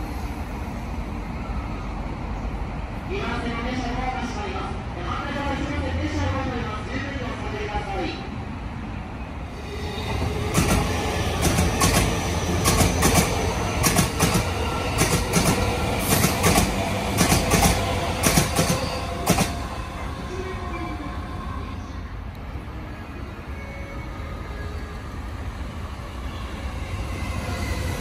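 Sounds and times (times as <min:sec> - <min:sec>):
train wheels clacking over rail joints: 0:10.5 - 0:19.6.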